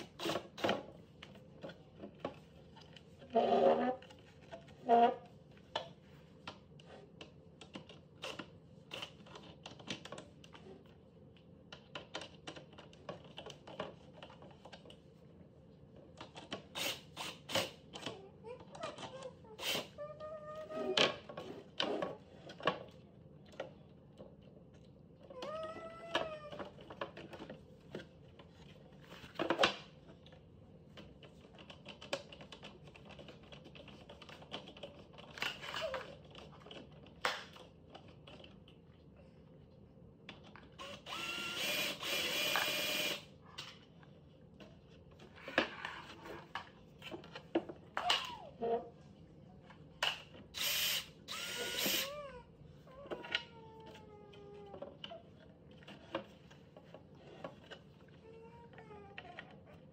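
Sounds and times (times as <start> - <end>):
small child whining: 18.1 - 21.2, 25.3 - 26.8, 51.8 - 54.8, 58.2 - 59.5
power drill driving a screw: 40.8 - 43.3, 50.6 - 52.1.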